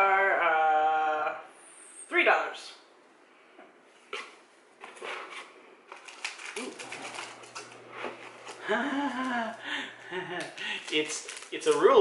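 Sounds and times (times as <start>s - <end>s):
paper being handled: 4.2s - 8.6s, 10.7s - 12.0s
plastic wrapping crinkling: 5.0s - 9.5s, 10.3s - 12.0s.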